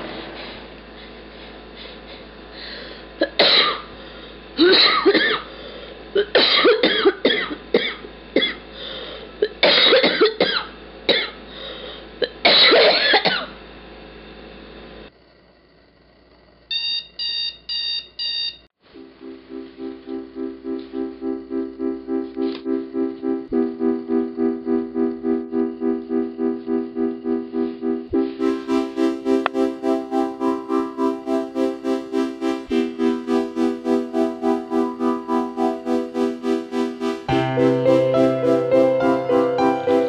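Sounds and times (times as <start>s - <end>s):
person coughing: 3.2s - 3.9s, 4.6s - 5.5s, 6.2s - 8.6s, 9.4s - 11.4s, 12.2s - 13.6s
alarm clock beeping: 16.7s - 39.8s
piano music: 19.0s - 40.0s.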